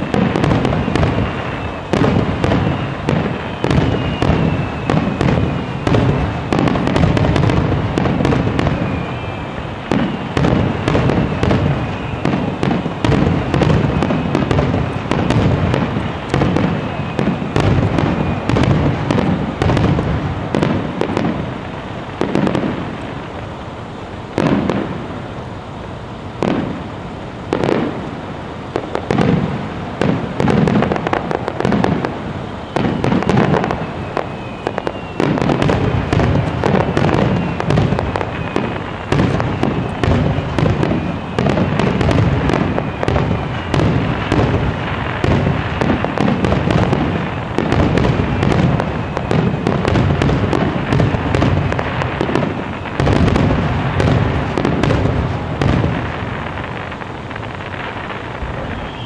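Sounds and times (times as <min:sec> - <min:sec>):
firework shells bursting: 0:00.0 - 0:23.6.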